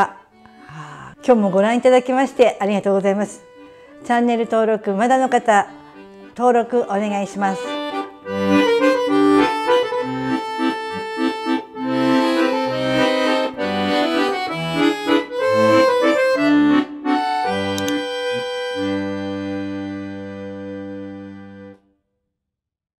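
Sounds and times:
lively instrumental tune: 0.0 - 21.8
alternating bass line: 7.6 - 21.5
long held chord: 7.6 - 21.8.

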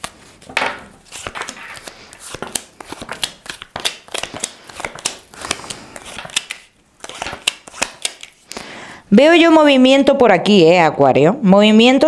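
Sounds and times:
cards shuffling: 0.0 - 8.5.

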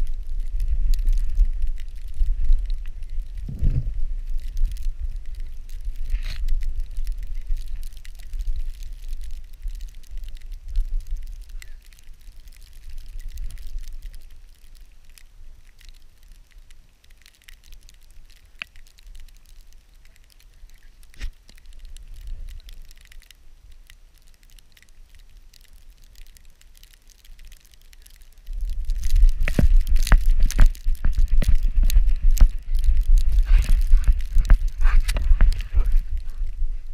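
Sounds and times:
camera rubbing against fur: 33.2 - 36.5.

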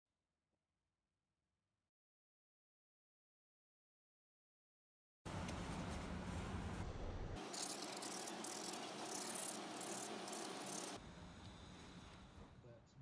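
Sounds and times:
sandpaper rasping on wood: 7.4 - 11.0.

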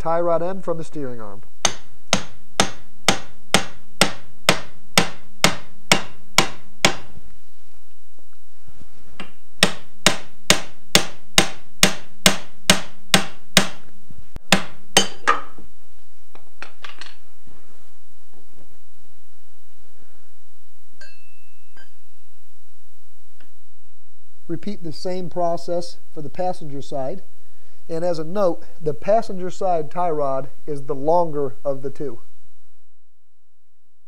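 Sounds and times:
hammer striking steel fork: 14.5 - 15.6.

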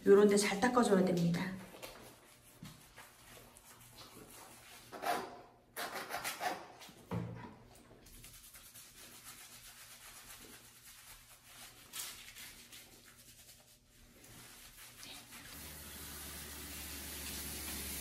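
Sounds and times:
hands rubbing wet fur: 1.7 - 4.9, 8.1 - 18.0.

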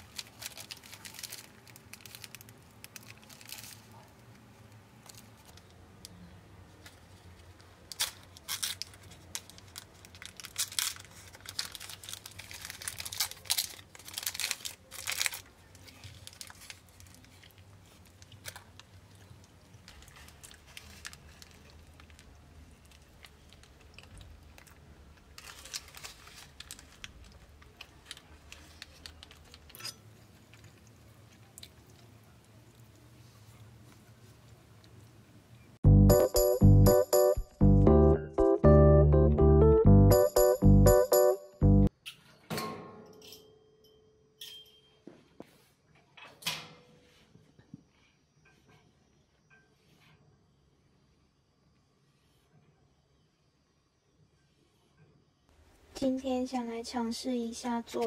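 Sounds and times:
paper wrapper crinkling: 0.0 - 5.8, 6.8 - 29.8.

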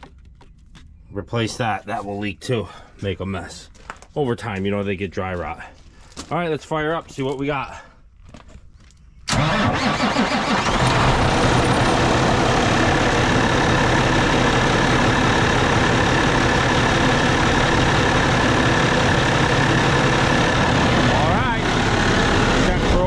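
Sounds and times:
diesel engine starting and idling: 9.3 - 23.0.

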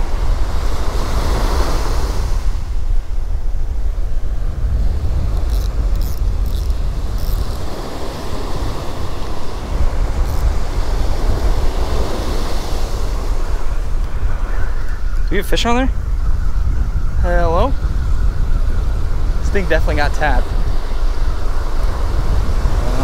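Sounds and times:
wind buffeting the microphone: 0.0 - 23.0
faint high ticks: 5.3 - 7.6
breaking surf: 19.5 - 23.0.

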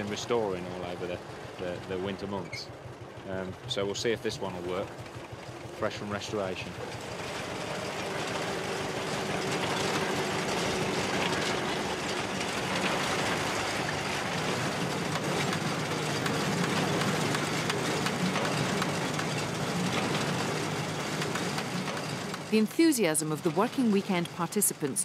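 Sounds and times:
tractor engine hum: 0.0 - 25.0
threshing machinery clatter: 4.8 - 22.6.

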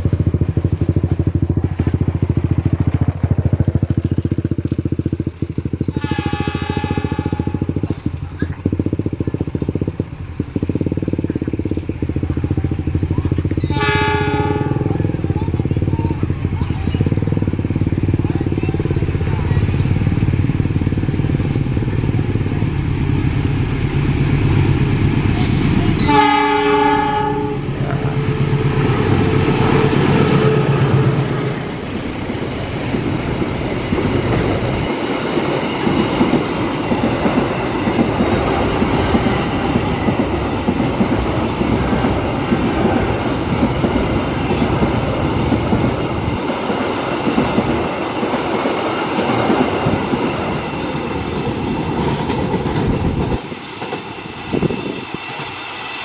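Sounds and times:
diesel locomotive engine: 0.0 - 56.0
train horn blast: 5.8 - 7.9, 13.6 - 15.1, 25.4 - 31.8.

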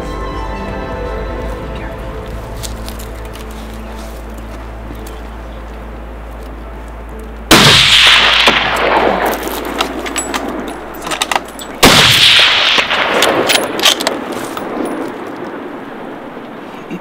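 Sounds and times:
rifle shots with echo: 7.5 - 16.5.

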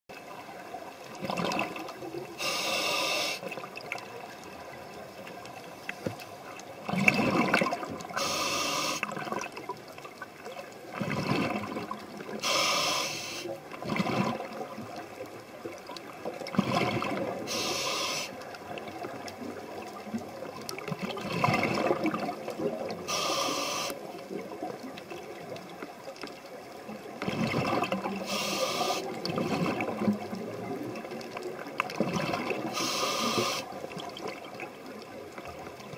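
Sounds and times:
bubbling exhalations underwater: 1.2 - 2.0, 6.8 - 8.3, 10.9 - 12.4, 13.8 - 14.8, 16.5 - 17.7, 20.9 - 23.3, 27.2 - 31.2, 31.9 - 33.0
regulator hissing inhalations: 2.4 - 3.5, 8.2 - 9.1, 12.4 - 13.5, 17.5 - 18.4, 23.1 - 24.0, 28.2 - 29.2, 32.7 - 33.7.

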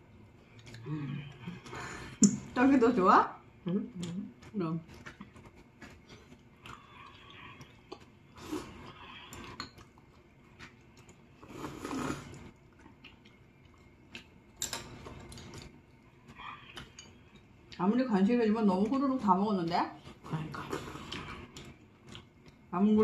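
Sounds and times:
close-up chewing noodles: 4.3 - 17.8, 20.0 - 22.7.

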